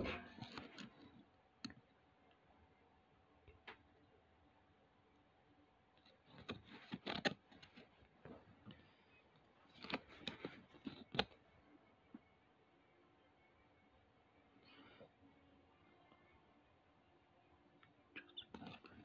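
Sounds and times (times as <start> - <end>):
packaging rustling and clicking: 9.7 - 11.4.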